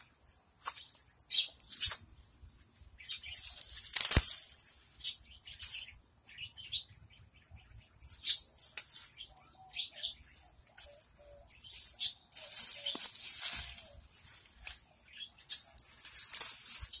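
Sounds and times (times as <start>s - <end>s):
leaves and stems rustling: 0.0s - 2.4s, 3.1s - 5.9s, 8.0s - 9.4s, 10.2s - 17.0s.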